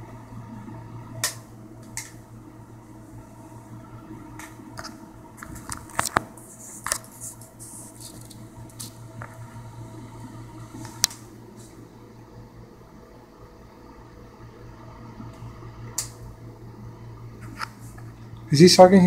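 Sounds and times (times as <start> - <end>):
steady low hum: 0.0 - 19.0
light rubbing handling noises: 4.8 - 9.4.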